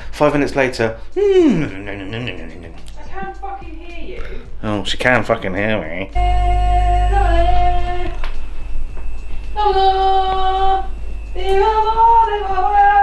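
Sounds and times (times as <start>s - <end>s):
low hum: 6.2s - 13.0s.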